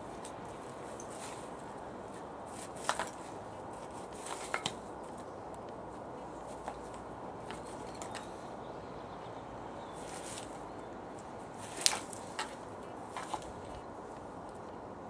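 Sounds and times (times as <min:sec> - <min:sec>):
dog clicking and scraping at bone: 0:02.5 - 0:05.2.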